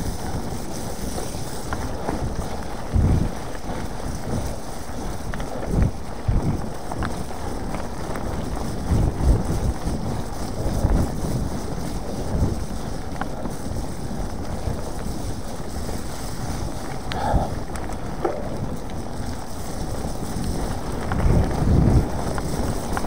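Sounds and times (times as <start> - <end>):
bike rumbling on rough ground: 0.0 - 23.0
wind buffeting microphone: 0.0 - 23.0.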